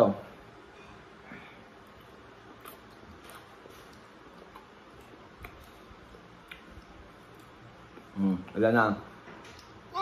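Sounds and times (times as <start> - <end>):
man chewing: 1.6 - 8.2.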